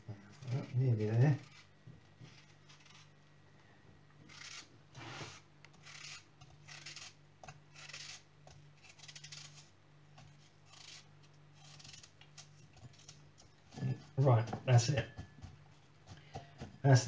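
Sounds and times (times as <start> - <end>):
knife slicing apple: 4.3 - 17.0.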